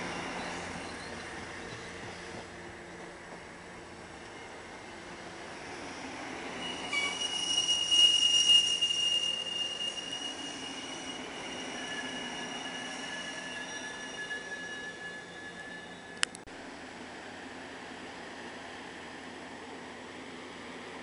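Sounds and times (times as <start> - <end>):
train coaches rumbling past: 0.0 - 21.0
metallic wheel squeal: 6.4 - 16.2.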